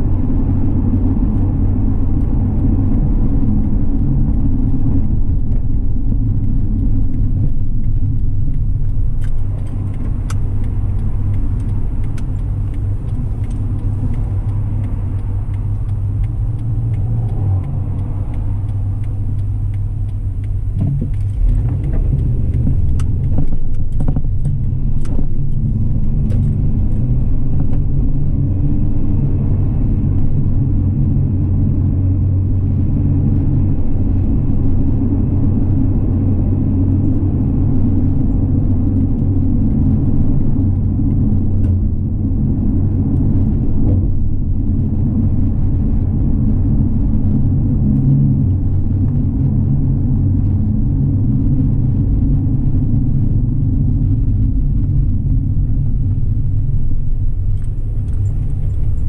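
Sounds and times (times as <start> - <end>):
car engine and road rumble: 0.0 - 59.0
sharp clicks and knocks: 5.4 - 28.0.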